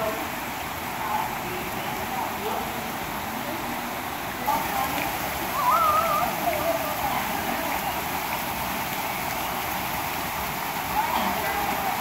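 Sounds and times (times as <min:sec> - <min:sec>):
water dripping into pool: 0:04.5 - 0:12.0.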